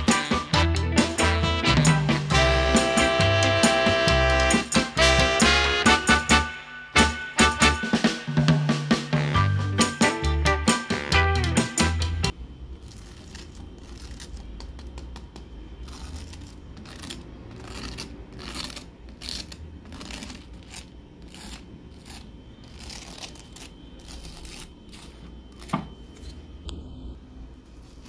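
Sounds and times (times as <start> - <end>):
knife cutting crispy crust: 12.8 - 25.9.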